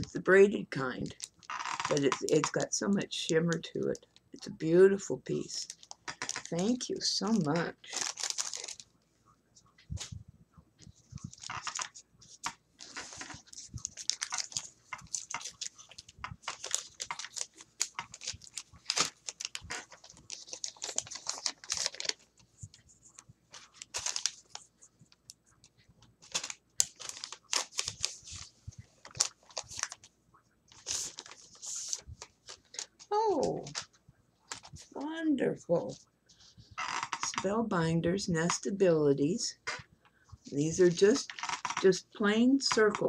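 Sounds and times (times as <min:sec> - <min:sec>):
packaging rustling and crinkling: 0:01.0 - 0:02.6, 0:05.4 - 0:09.0, 0:10.8 - 0:25.3, 0:26.2 - 0:30.1, 0:30.7 - 0:35.0, 0:40.9 - 0:41.8.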